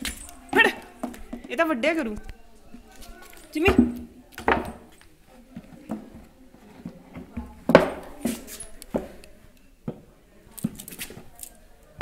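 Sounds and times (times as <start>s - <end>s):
plastic bottle knocking and crinkling: 0.0s - 1.7s, 6.9s - 8.2s.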